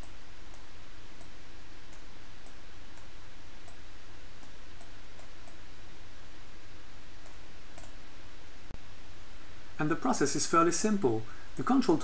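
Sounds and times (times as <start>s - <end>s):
computer mouse clicks: 0.0s - 3.8s, 4.4s - 5.6s, 7.2s - 8.0s
microphone hiss: 0.0s - 12.0s.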